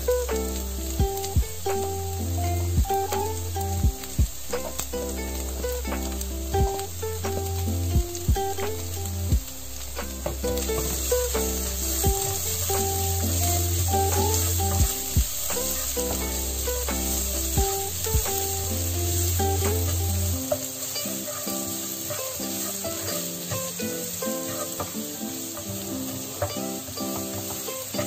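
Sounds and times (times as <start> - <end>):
vegetables sizzling in oil: 0.0 - 28.0
spatula scraping pan: 9.7 - 23.8.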